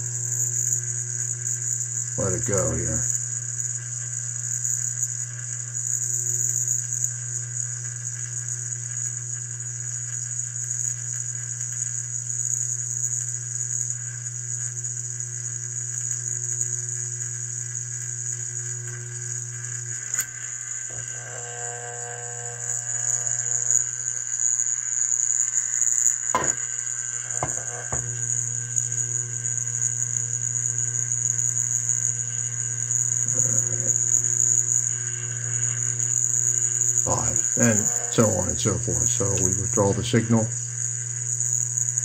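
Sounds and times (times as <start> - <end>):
electrical hum: 0.0 - 42.0
click: 19.9 - 20.5
sharp knocks: 26.4 - 26.6, 27.3 - 28.1.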